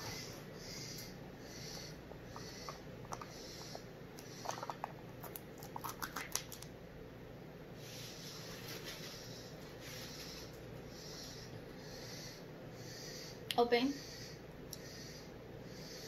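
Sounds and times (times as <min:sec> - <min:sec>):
plastic packaging crinkling: 0:04.5 - 0:06.7.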